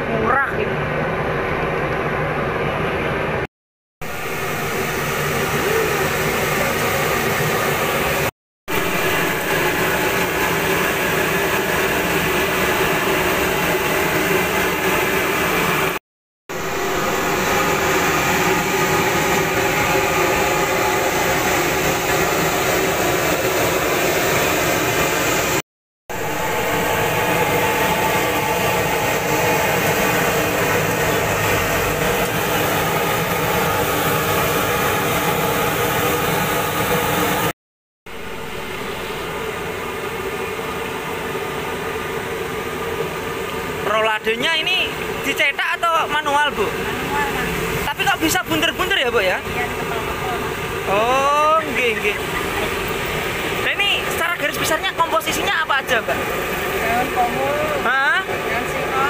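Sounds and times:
food deep-frying in oil: 4.0s - 37.5s.

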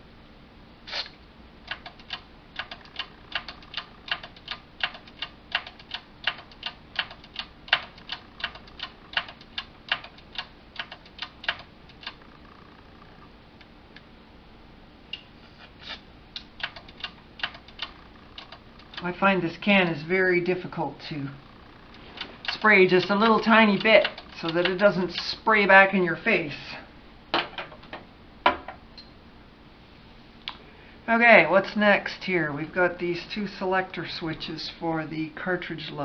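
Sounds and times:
rotary switch clicking: 1.7s - 12.4s, 16.4s - 19.1s, 21.9s - 25.3s.

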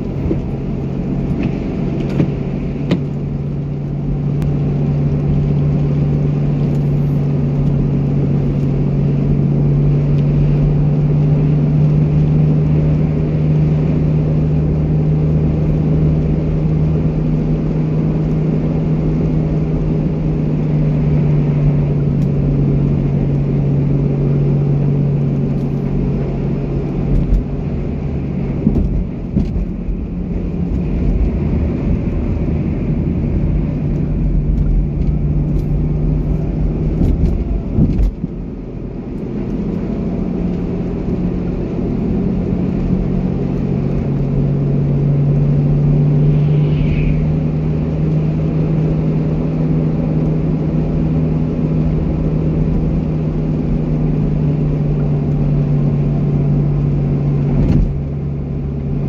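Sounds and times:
low hum: 0.0s - 50.8s
car driving on slushy road: 0.0s - 59.0s.

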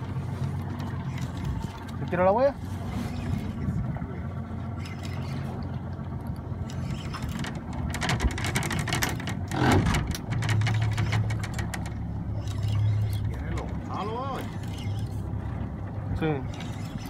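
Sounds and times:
outboard motor idling: 0.0s - 17.0s
fishing reel clicking and whirring: 4.6s - 15.4s, 16.1s - 17.0s.

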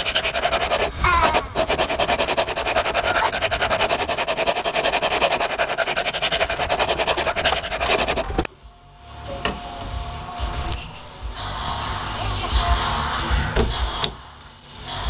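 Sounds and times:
metal file rasping on steel: 0.0s - 8.4s.

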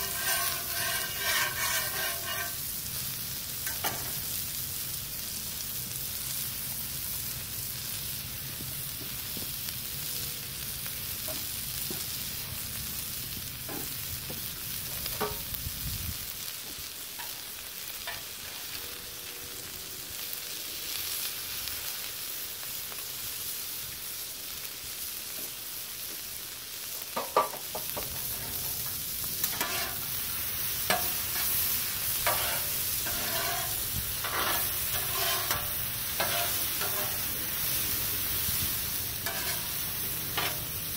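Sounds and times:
metal spatulas scraping griddle: 0.0s - 2.7s, 28.0s - 37.8s, 39.2s - 40.9s
food sizzling on griddle: 0.0s - 40.9s.

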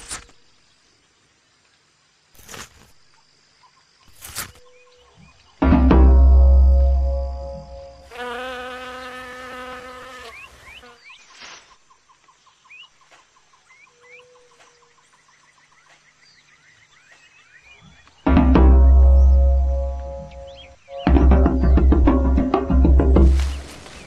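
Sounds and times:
rapid insect trill: 6.4s - 11.9s.

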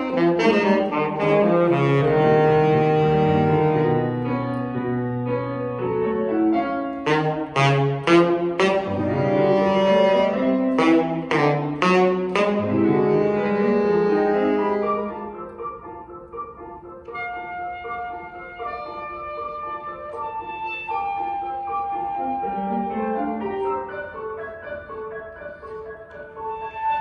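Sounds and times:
alto saxophone: 0.0s - 4.6s, 6.9s - 15.5s, 17.1s - 23.9s
grand piano: 0.0s - 27.0s.

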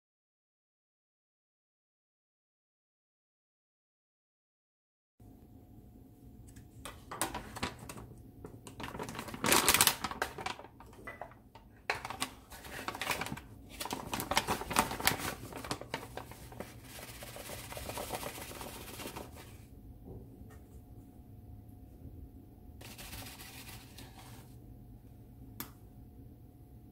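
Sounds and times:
plastic bag crinkling: 7.2s - 19.6s
measuring cup scooping flour: 16.0s - 19.7s, 22.8s - 24.6s.

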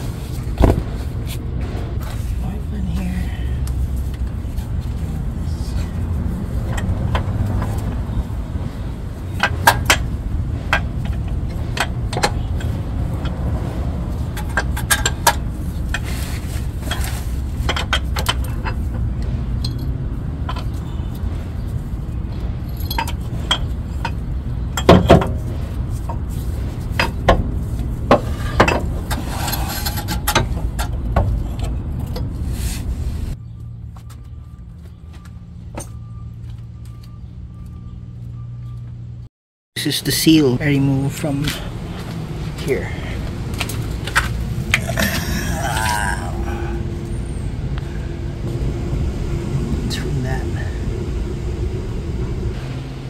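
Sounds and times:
steady low rumble: 0.0s - 39.3s, 40.2s - 53.0s
rubbing scrape: 32.4s - 33.4s.

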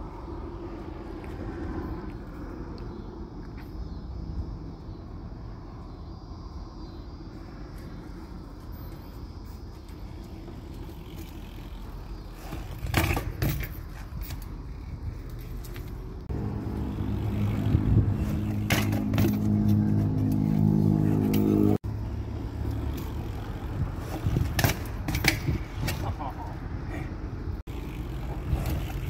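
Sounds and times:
bike rolling on concrete: 0.0s - 29.0s
engine hum: 0.0s - 29.0s
bike clanks: 9.6s - 16.2s, 17.0s - 21.8s, 22.6s - 26.5s, 27.7s - 29.0s
bike clattering against wall: 12.4s - 13.8s, 18.4s - 19.5s.

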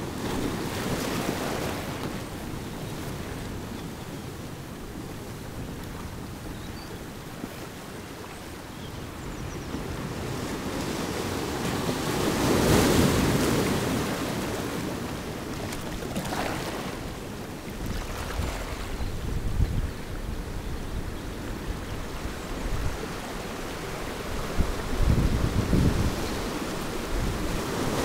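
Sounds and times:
sea surf washing over rocks: 0.0s - 3.7s, 9.8s - 19.4s, 21.6s - 28.0s
wave crashing against boulders: 11.6s - 18.8s.

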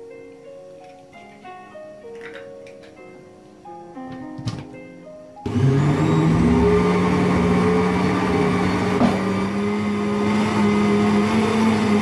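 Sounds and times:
blender motor running: 5.5s - 12.0s.

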